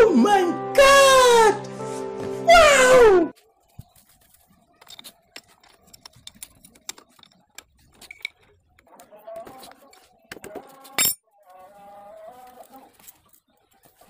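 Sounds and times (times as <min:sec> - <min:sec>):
man exclaiming loudly: 0:00.0 - 0:01.6
music: 0:00.0 - 0:03.3.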